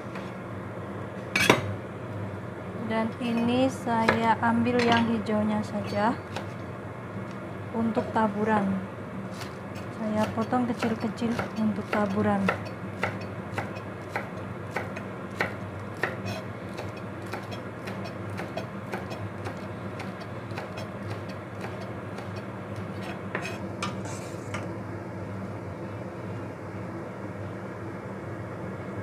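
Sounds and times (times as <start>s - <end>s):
steady low hum: 0.0s - 29.0s
knife chopping on wooden board: 9.4s - 23.6s.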